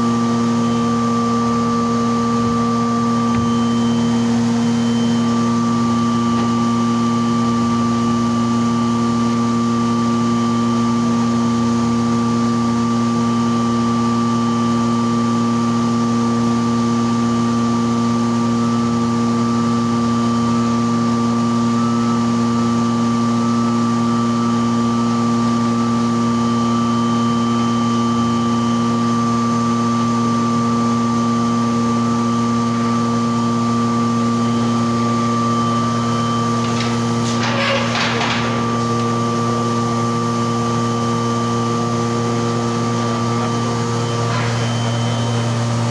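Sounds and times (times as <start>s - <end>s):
machine motors humming: 0.0s - 13.0s, 30.6s - 45.9s.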